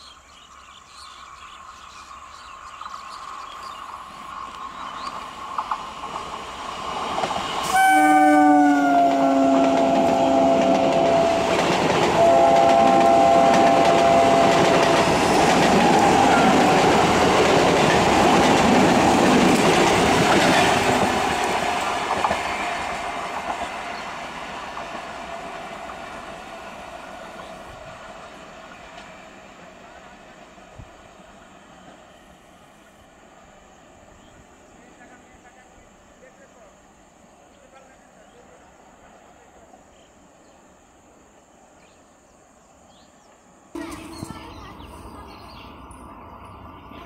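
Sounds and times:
train wheels clattering over rails: 0:04.5 - 0:07.8, 0:09.6 - 0:26.4
train horn: 0:07.6 - 0:17.4.

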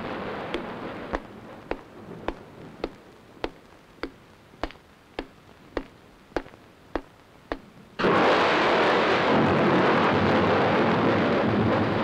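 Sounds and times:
sharp steady clicks: 0:00.0 - 0:07.7.

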